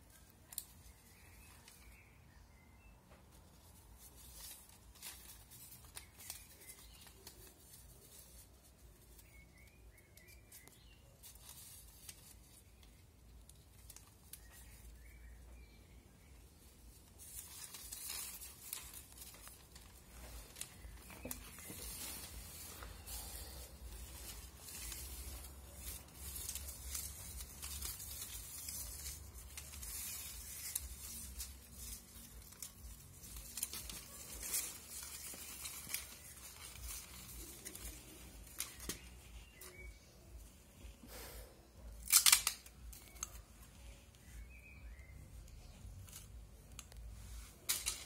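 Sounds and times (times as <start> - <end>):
newspaper rustling and crinkling: 3.3 - 41.0.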